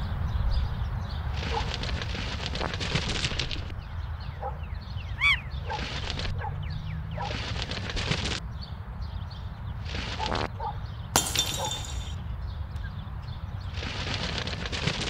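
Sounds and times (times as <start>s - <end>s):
bird-like chirps and whistles: 4.2s - 5.8s
glass breaking crash: 11.2s - 12.2s.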